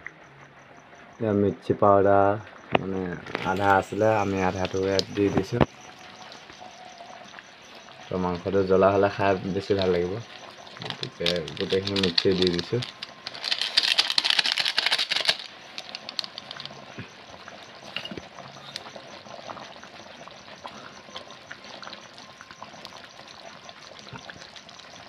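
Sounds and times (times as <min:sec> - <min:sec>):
curry crackling and bubbling: 0:02.4 - 0:25.0.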